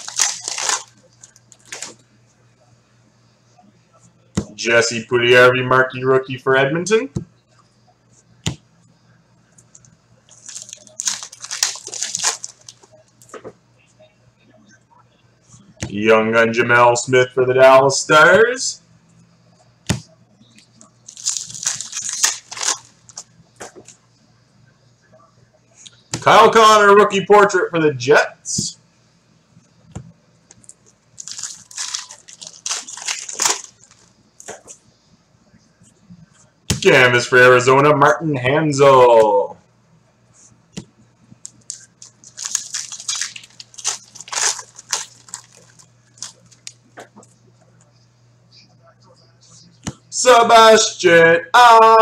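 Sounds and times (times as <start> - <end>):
foil wrapper crinkling and tearing: 0.0 - 2.0, 10.3 - 12.9, 21.1 - 23.2, 31.2 - 34.1, 41.4 - 46.8.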